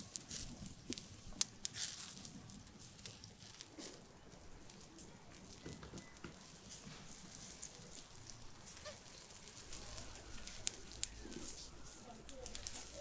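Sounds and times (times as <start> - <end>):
pig fat crackling and spitting: 0.0 - 13.0.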